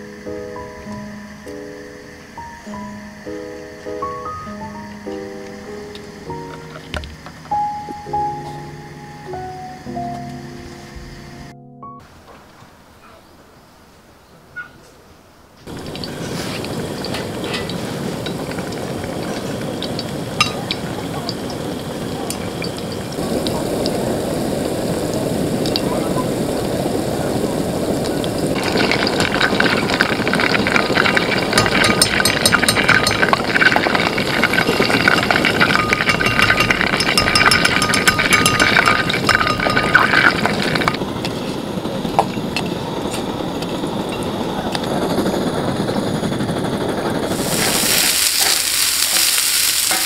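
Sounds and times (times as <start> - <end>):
food deep-frying in oil: 15.6 - 41.4, 47.3 - 50.0.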